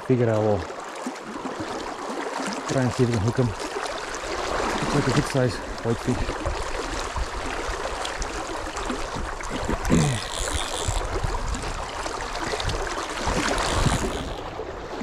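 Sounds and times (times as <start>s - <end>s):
river water rushing and splashing: 0.0s - 15.0s.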